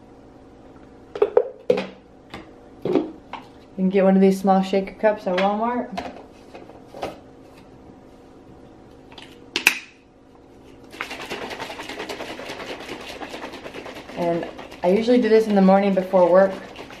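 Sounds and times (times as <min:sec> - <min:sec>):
shaker cup shaking: 0:10.8 - 0:17.0.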